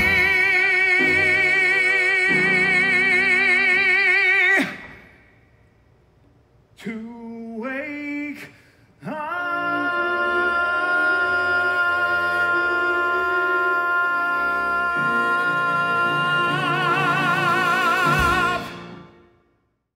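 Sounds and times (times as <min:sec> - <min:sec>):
pit band playing chords: 0:00.0 - 0:03.4, 0:15.0 - 0:19.3
man singing with vibrato: 0:00.0 - 0:05.2, 0:06.8 - 0:19.3.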